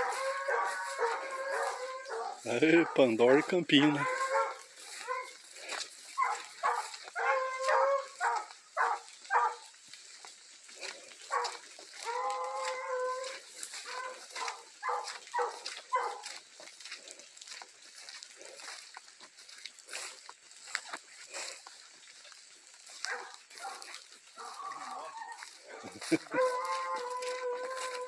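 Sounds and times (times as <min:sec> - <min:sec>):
dog howling: 0:00.0 - 0:05.5, 0:06.2 - 0:09.6, 0:11.3 - 0:16.3, 0:23.1 - 0:28.0
dogs barking and yelping: 0:00.0 - 0:28.0.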